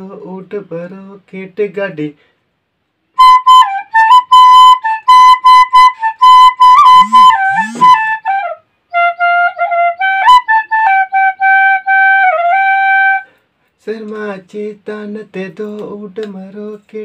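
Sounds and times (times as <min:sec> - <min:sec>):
bamboo flute melody: 0:03.1 - 0:13.3.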